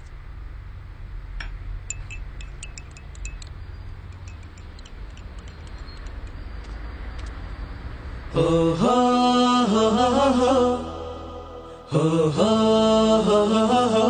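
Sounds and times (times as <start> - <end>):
light high tinkling clinks: 1.9 - 3.5, 4.1 - 6.3.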